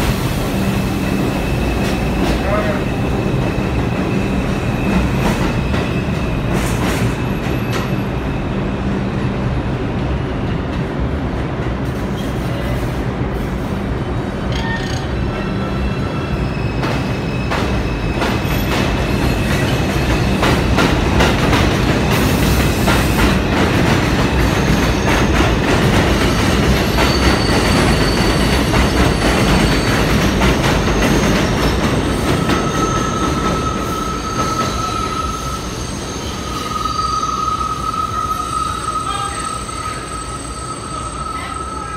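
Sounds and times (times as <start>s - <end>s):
train rumbling on tracks: 0.0s - 41.9s
high wheel squeal: 26.8s - 41.9s.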